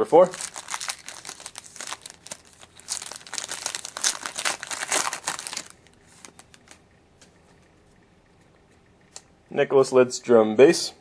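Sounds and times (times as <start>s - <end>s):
foil wrapper tearing and crinkling: 0.2s - 6.8s.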